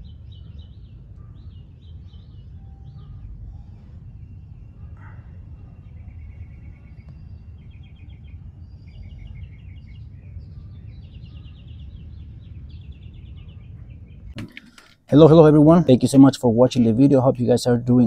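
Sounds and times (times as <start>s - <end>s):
low rumble: 0.0s - 14.4s
small birds chirping: 0.0s - 14.4s.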